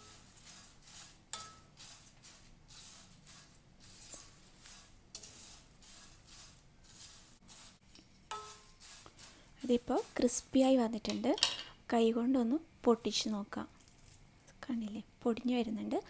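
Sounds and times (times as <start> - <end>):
wooden spatula scraping rice in pan: 0.0 - 11.2.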